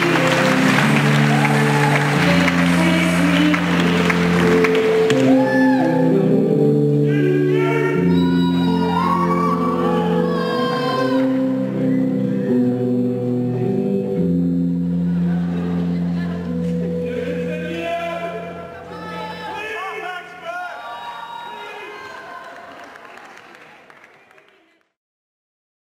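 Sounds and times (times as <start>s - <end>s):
crowd cheering: 0.0s - 6.2s, 7.9s - 12.6s, 18.1s - 25.0s
live band playing: 0.0s - 6.9s
person singing: 0.0s - 20.4s.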